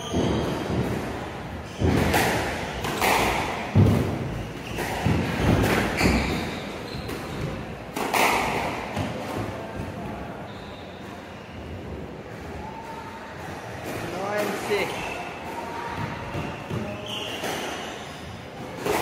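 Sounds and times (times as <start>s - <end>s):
squash ball thuds: 0.0s - 10.2s.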